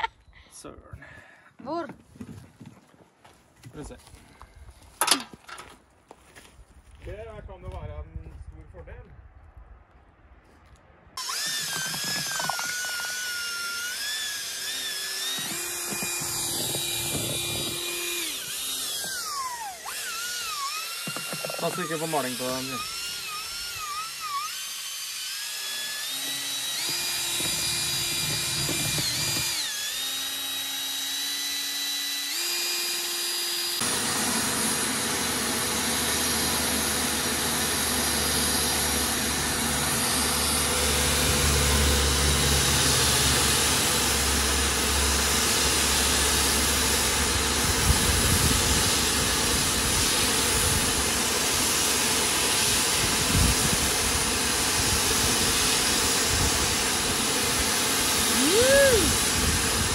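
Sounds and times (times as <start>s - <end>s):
drill paddle mixer whining: 11.2s - 59.9s
paint sprayer turbine hiss: 33.8s - 59.9s.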